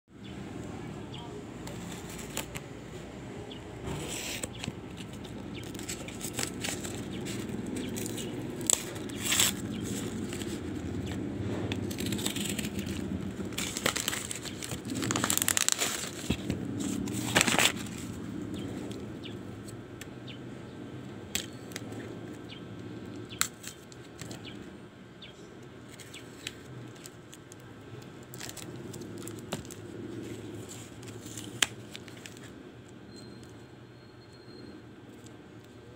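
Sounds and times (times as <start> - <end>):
wrapping crinkling and tearing: 1.6 - 2.7, 3.8 - 19.1, 25.9 - 32.6.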